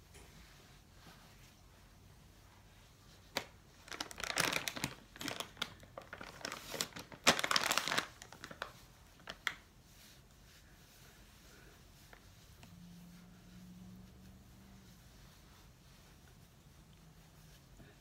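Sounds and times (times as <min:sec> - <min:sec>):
paper tissue crumpling: 0:02.7 - 0:13.6.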